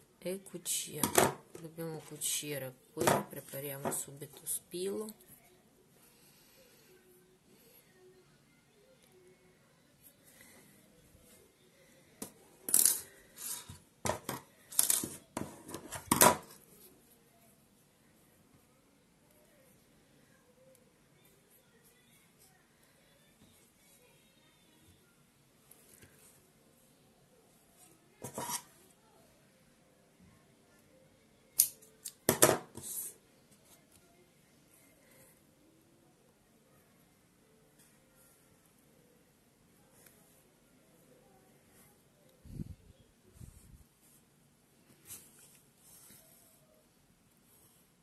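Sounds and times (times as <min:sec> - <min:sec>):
scissors snipping hair: 0:31.6 - 0:32.2.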